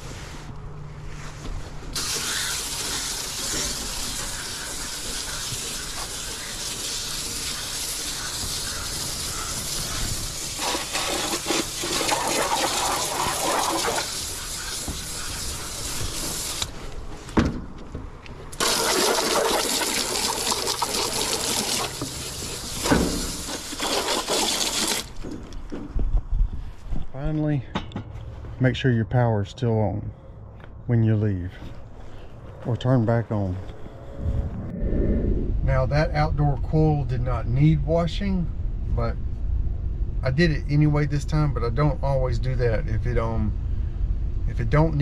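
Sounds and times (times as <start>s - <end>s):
garden hose spraying water: 1.9s - 16.8s, 18.5s - 25.2s.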